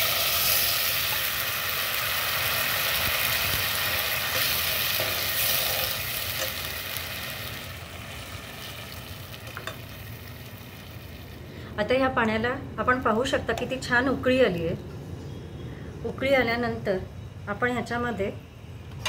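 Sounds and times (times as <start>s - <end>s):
spices sizzling in hot oil: 0.0s - 11.5s.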